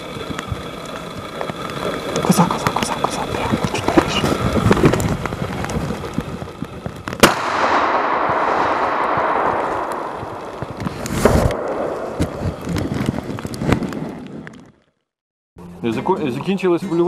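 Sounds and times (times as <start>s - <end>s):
shotgun shot echoing: 7.2s - 12.2s.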